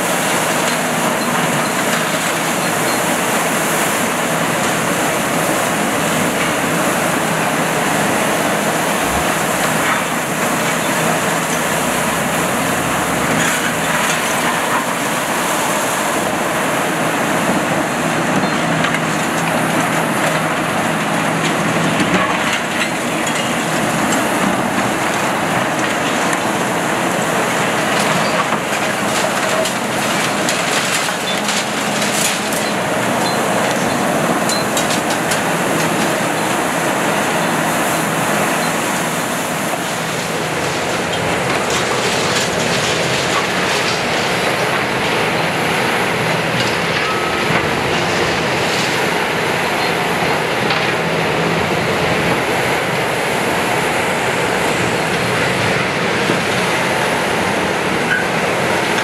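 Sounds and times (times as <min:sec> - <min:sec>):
excavator diesel engine running: 0:00.0 - 0:59.0
rubble grinding and crunching: 0:06.4 - 0:15.8.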